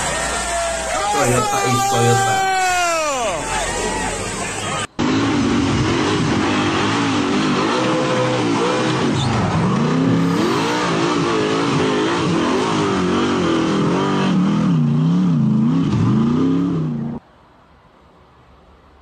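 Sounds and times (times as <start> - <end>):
buggy engine revving: 3.4 - 17.2.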